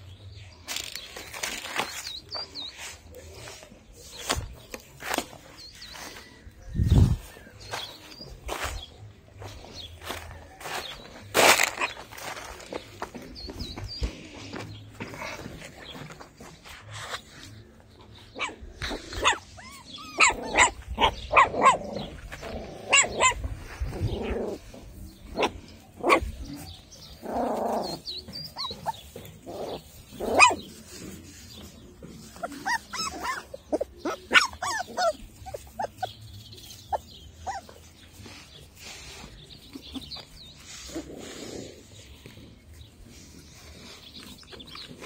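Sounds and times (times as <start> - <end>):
puppies yipping and barking: 15.0 - 45.0.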